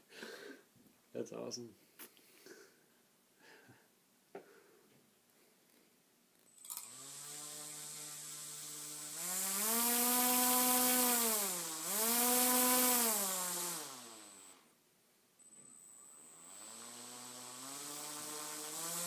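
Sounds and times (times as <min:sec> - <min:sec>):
small electric motor whining: 0:06.5 - 0:14.7, 0:15.7 - 0:19.0.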